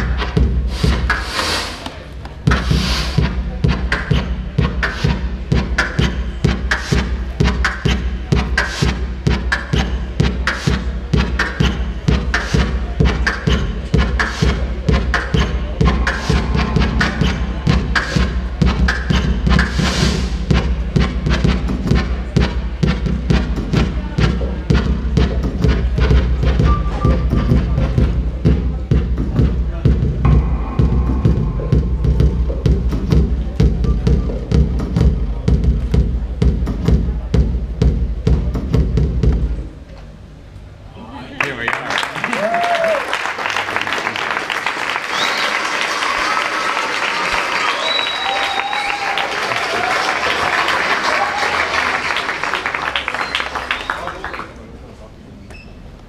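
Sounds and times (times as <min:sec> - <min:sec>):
electronic kick drum thumps: 0:00.0 - 0:01.3, 0:02.4 - 0:39.7
snappy electronic drum hits: 0:00.0 - 0:01.8, 0:02.4 - 0:39.6
low bass tone: 0:11.0 - 0:40.4.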